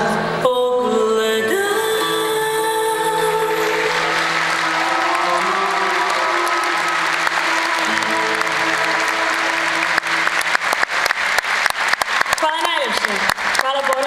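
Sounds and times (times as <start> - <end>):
live band sustained notes: 0.0 - 14.0
audience applauding: 3.2 - 14.0
loud claps close by: 3.9 - 14.0.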